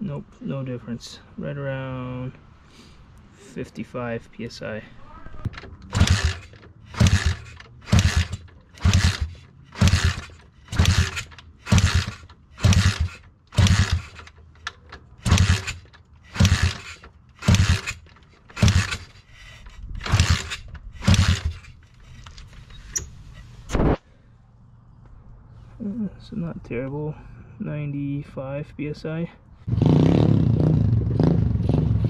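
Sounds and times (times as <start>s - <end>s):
engine being turned over: 5.4s - 22.7s.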